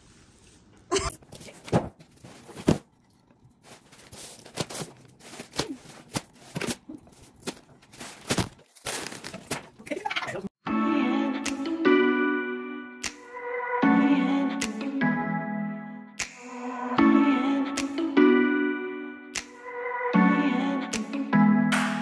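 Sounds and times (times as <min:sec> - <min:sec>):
plastic bags crinkling: 0:01.2 - 0:10.0.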